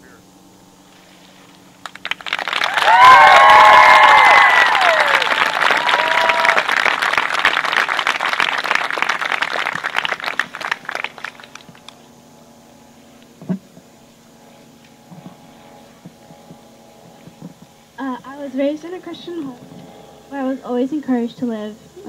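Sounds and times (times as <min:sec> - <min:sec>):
faint steady hum: 0:00.0 - 0:22.0
crowd clapping and cheering: 0:01.8 - 0:12.0
person whooping: 0:02.6 - 0:06.8.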